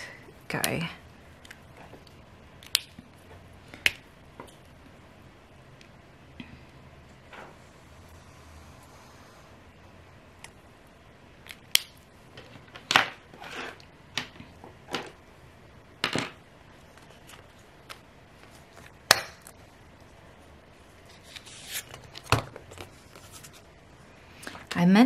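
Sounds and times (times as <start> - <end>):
paper sticker sheets rustling: 21.0 - 23.7.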